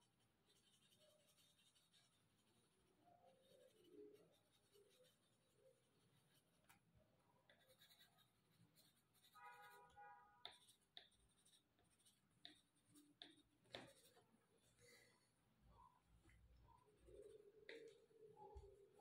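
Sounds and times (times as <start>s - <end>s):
pencil scratching on paper: 0.0s - 6.8s, 7.4s - 14.8s
light pencil ticks: 7.4s - 8.2s, 10.4s - 14.2s.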